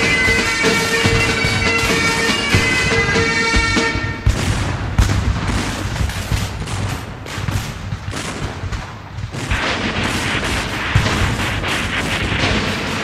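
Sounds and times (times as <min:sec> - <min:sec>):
bagpipe music: 0:00.0 - 0:04.3
rifle fire: 0:00.0 - 0:13.0.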